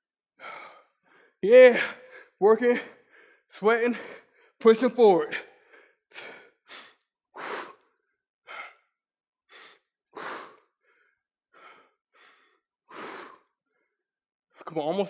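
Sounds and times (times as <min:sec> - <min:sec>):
man breathing hard: 0:00.4 - 0:04.6, 0:05.4 - 0:14.0.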